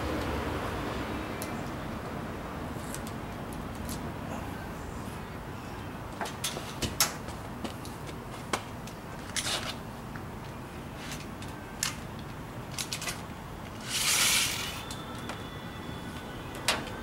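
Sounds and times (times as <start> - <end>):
tape measure clicks and rustles: 12.7 - 15.3
tape sliding hiss: 13.7 - 15.2.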